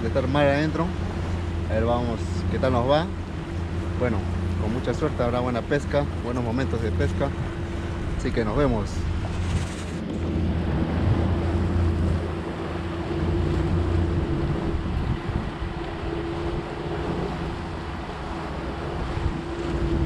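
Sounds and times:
boat engine humming: 0:00.0 - 0:20.0
water rushing past hull: 0:00.0 - 0:20.0
wind on microphone: 0:07.3 - 0:20.0.

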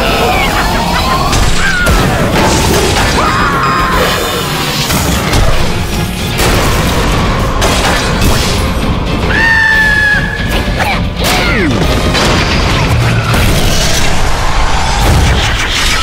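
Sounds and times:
cartoon action music: 0:00.0 - 0:16.0.

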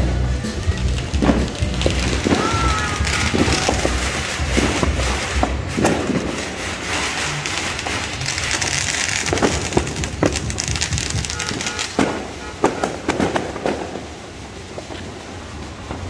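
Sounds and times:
firecracker bangs: 0:00.0 - 0:16.0
fireworks crackling: 0:00.0 - 0:16.0.

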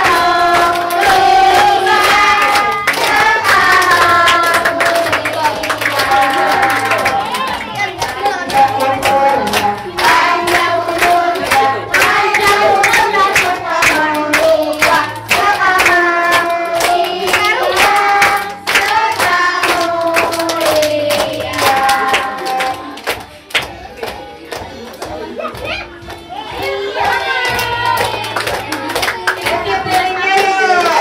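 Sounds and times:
group of voices singing: 0:00.0 - 0:25.5, 0:26.3 - 0:31.0
hands clapping along: 0:00.0 - 0:31.0.

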